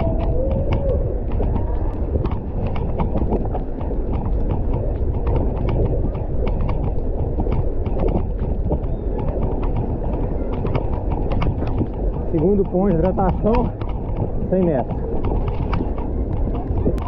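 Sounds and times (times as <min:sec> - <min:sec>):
bike rattling over bumps: 0:00.0 - 0:17.0
bike tyre noise on dirt: 0:00.0 - 0:17.0
wind rumbling on microphone: 0:00.0 - 0:17.0.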